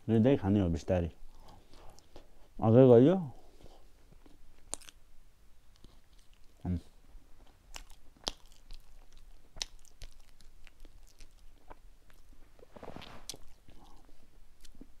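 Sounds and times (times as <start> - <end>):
person chewing food: 1.3 - 2.5, 3.5 - 5.0, 5.6 - 6.7, 7.3 - 15.0.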